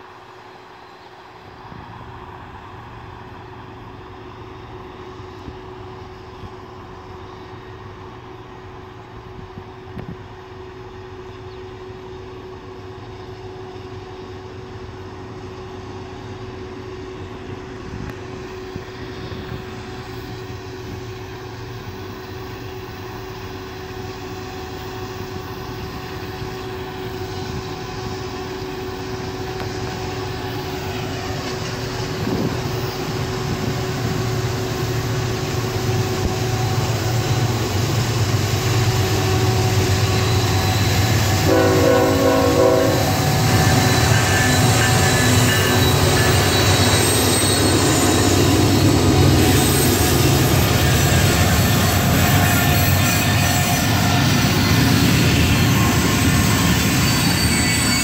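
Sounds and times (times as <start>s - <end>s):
locomotive engine drone: 0.0s - 58.0s.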